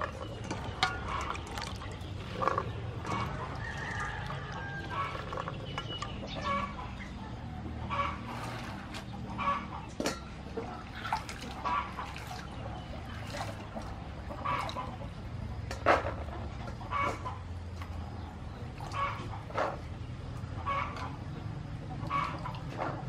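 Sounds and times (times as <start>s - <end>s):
chickens clucking: 0.0s - 23.0s.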